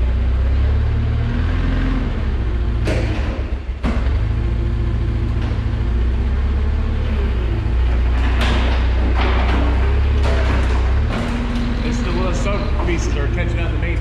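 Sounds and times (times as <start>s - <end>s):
forklift engine rumbling: 0.0s - 14.0s
sharp knocks: 2.8s - 4.3s.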